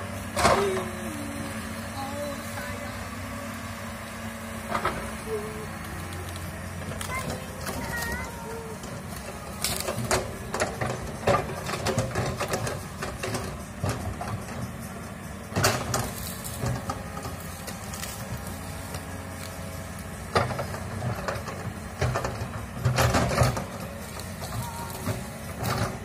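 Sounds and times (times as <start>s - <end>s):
excavator diesel engine running: 0.0s - 26.0s
branches knocking and cracking: 5.7s - 14.0s, 15.6s - 26.0s.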